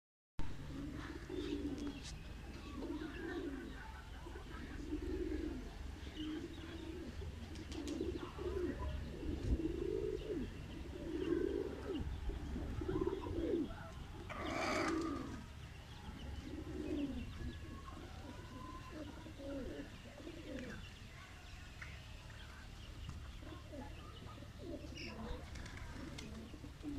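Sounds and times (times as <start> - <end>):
pigeons cooing: 0.5 - 21.0, 22.4 - 26.9.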